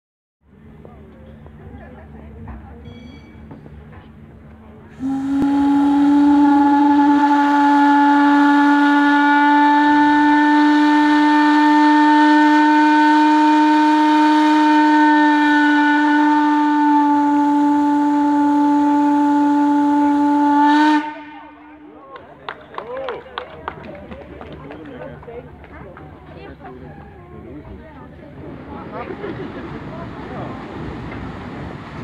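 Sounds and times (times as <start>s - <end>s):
steam whistle long blast: 4.9s - 21.9s.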